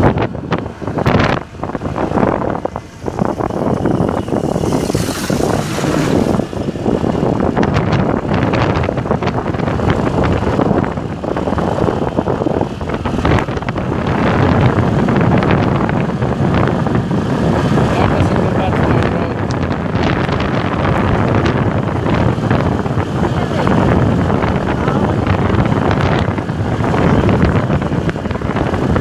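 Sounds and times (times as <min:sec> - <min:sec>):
motorbike engine: 0:00.0 - 0:29.0
road noise: 0:00.0 - 0:29.0
wind buffeting microphone: 0:00.0 - 0:29.0.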